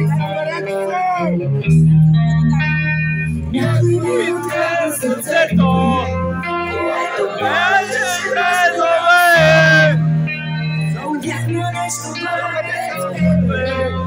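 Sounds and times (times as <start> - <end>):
electric guitars: 0.0 - 14.0
woman singing: 3.4 - 9.9, 10.8 - 14.0.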